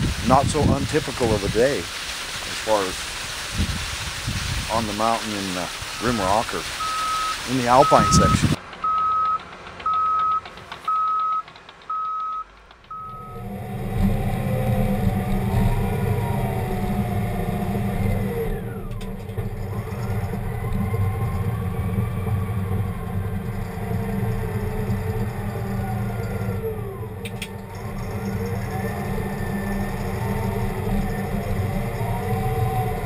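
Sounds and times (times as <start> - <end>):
bulldozer engine under load: 0.0 - 33.0
backup alarm beeping: 6.0 - 13.6
wavering squeals: 10.9 - 33.0.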